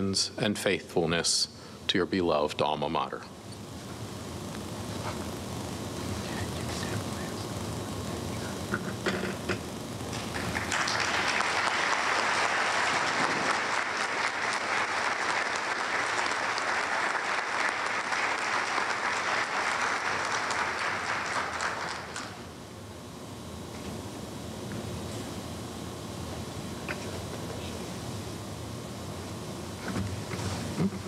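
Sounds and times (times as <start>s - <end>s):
audience applause: 10.1s - 22.4s.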